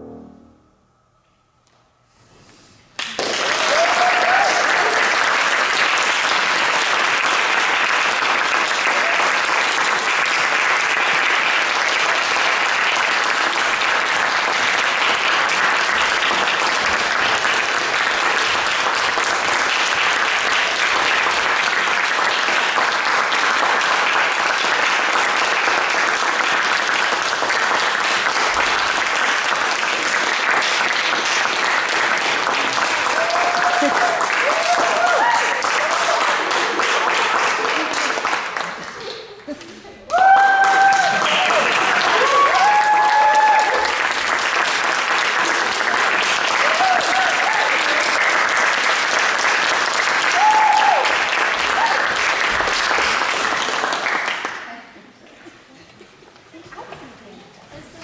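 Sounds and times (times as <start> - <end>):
audience applauding: 3.0 - 54.9.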